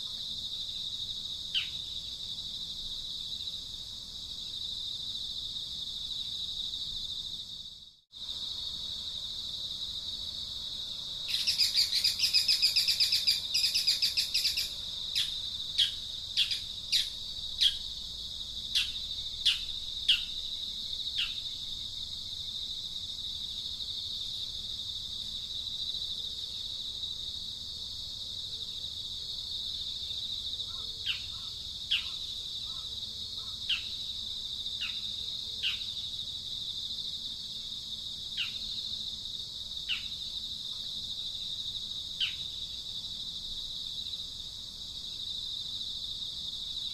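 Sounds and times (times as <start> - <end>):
bird chirping: 1.6 - 2.2, 11.3 - 17.9, 18.8 - 20.4
high-pitched insect drone: 10.7 - 18.1.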